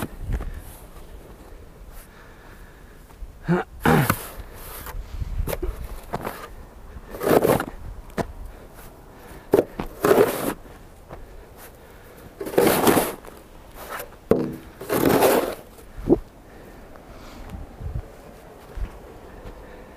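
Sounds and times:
snow shovel scraping snow: 7.1s - 7.7s, 9.9s - 10.6s, 12.4s - 14.1s, 14.7s - 15.8s.

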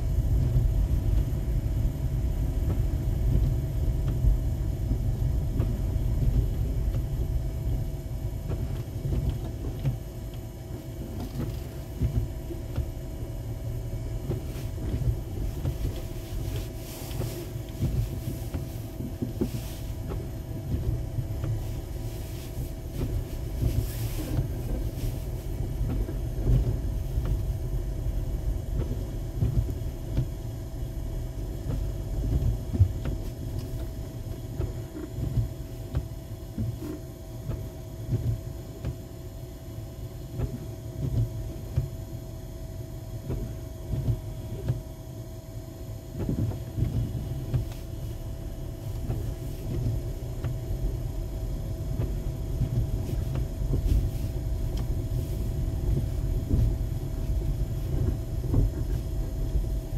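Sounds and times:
tyres and engine rumble: 46.3s - 59.9s.

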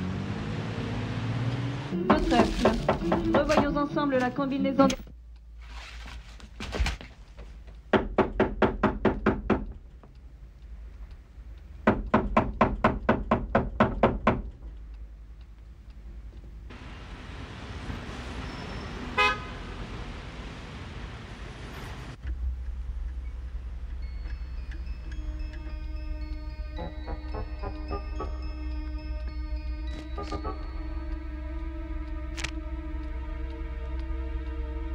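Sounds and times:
city street traffic: 0.0s - 5.6s, 7.4s - 34.9s
short horn toot: 18.6s - 19.6s.

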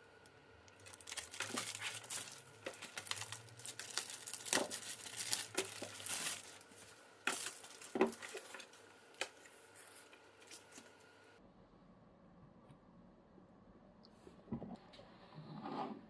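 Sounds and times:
plastic bag crinkling: 0.7s - 11.0s.

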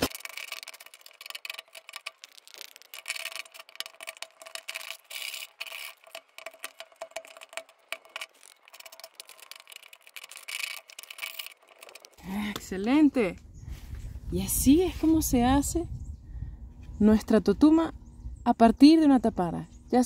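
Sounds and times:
blade scraping gourd shell: 0.0s - 12.6s.

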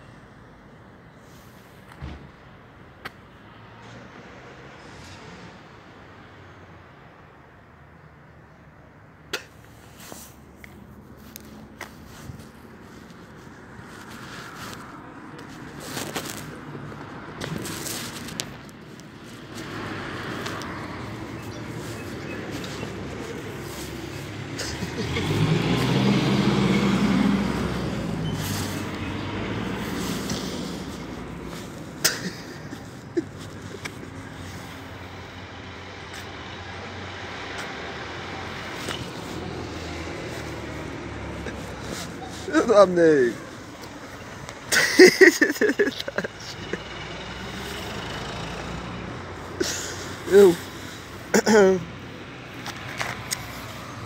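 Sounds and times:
road vehicle passing: 0.4s - 54.0s
vehicle engine driving past: 19.6s - 31.9s, 46.5s - 49.5s.

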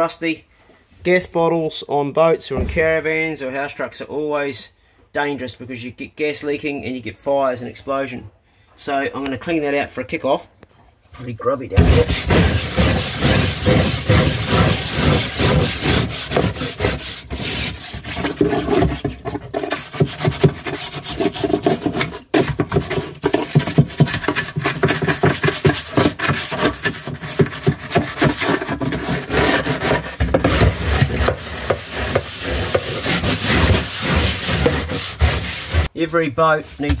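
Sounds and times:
plastic brush scrubbing floor: 11.7s - 36.0s.

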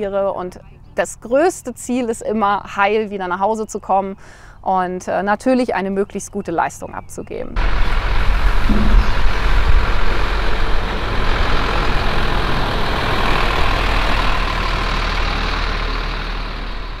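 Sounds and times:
truck diesel engine pulling away: 7.6s - 17.0s.

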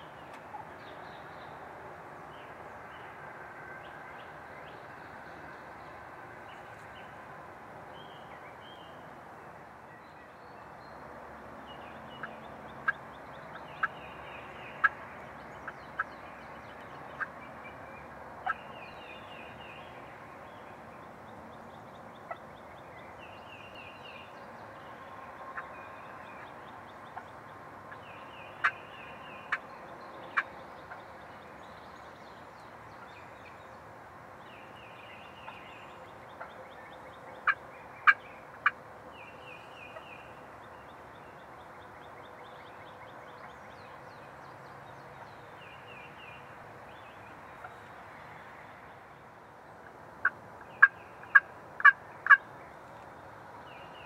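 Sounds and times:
wild turkeys calling: 12.2s - 14.0s, 37.4s - 38.8s, 50.2s - 52.4s.

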